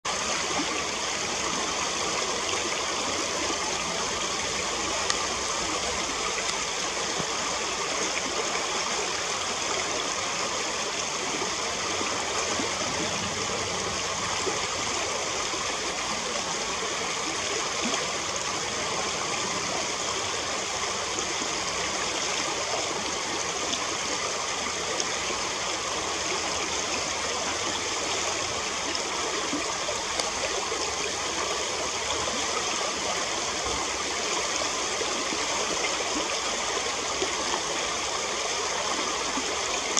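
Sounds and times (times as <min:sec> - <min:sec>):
river water rushing: 0:00.1 - 0:39.9.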